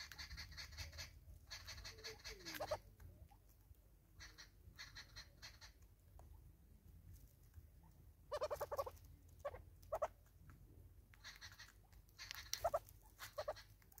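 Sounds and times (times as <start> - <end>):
bird clucking: 0.0 - 3.5, 4.1 - 6.5, 7.8 - 10.4, 11.0 - 14.0.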